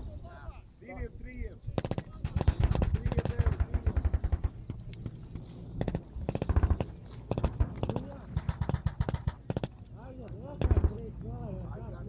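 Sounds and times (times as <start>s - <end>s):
automatic gunfire bursts: 1.8s - 4.8s, 5.8s - 9.8s, 10.6s - 11.0s.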